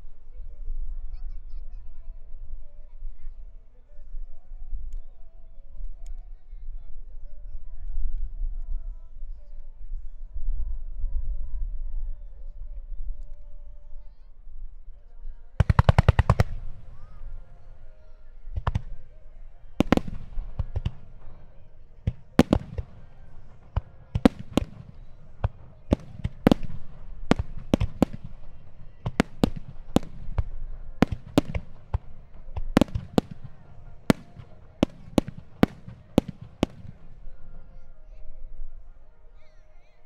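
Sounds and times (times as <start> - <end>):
firework shells bursting: 15.6 - 17.8, 19.8 - 37.3.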